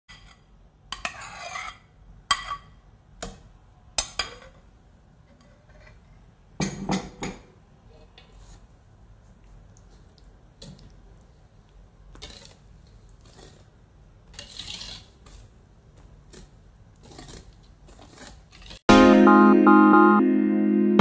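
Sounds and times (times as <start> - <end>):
wire whisk stirring in bowl: 12.2 - 15.6.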